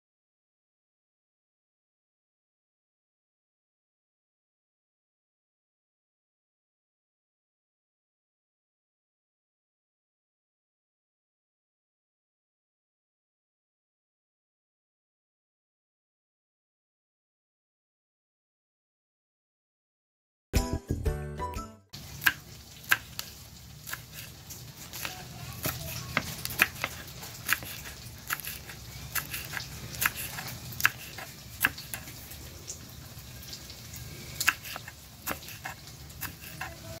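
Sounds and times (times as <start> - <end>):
knife striking cutting board: 22.2 - 32.2, 34.4 - 36.8.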